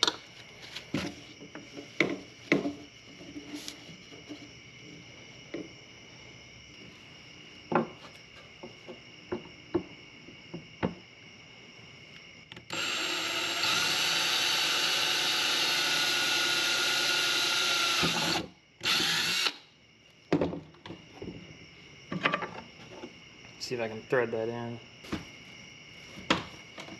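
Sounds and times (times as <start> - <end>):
cordless drill whining: 12.6 - 19.6.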